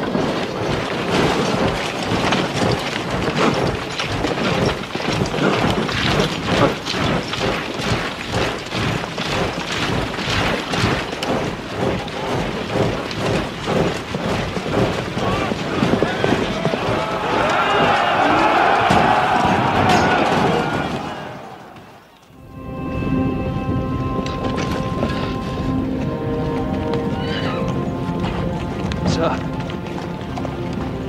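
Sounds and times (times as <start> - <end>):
battle din of gunfire: 15.1 - 22.0.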